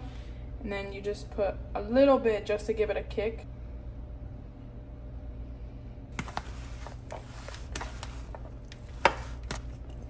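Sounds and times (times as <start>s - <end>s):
spoon scraping plastic bowl: 6.2s - 10.0s.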